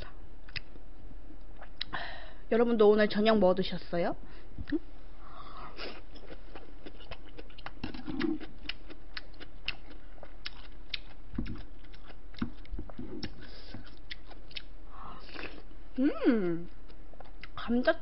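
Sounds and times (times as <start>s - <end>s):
person chewing food: 0.4s - 0.8s, 1.4s - 1.9s, 5.7s - 15.8s, 16.6s - 17.6s.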